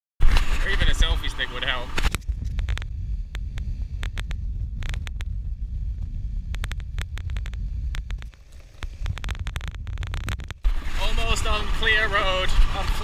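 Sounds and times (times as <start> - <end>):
wind buffeting microphone: 0.2 - 13.0.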